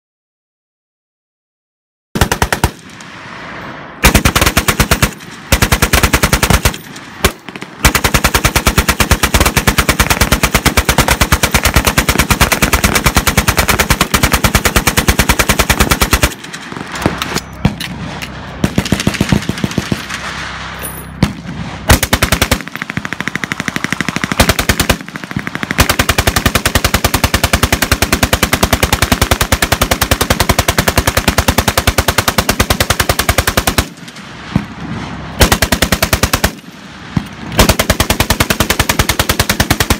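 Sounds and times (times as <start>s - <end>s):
machine gun firing bursts: 2.2s - 2.8s, 4.0s - 17.2s, 18.6s - 20.3s, 21.9s - 34.0s, 35.4s - 36.7s, 37.6s - 39.9s
distant scattered gunfire: 4.0s - 20.3s.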